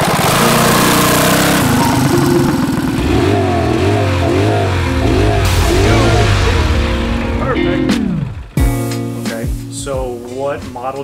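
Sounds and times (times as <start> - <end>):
mini bike engine running: 0.0 - 4.9
rising and falling tones: 0.0 - 8.7
steady low tones: 0.4 - 10.9.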